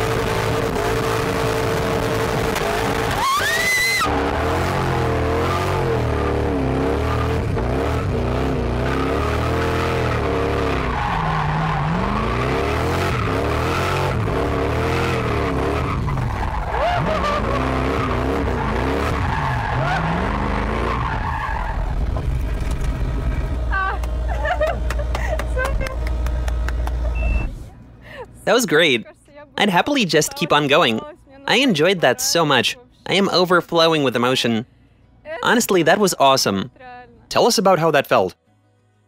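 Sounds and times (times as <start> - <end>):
car engine revving: 0.0 - 27.6
tyres skidding: 0.0 - 27.7.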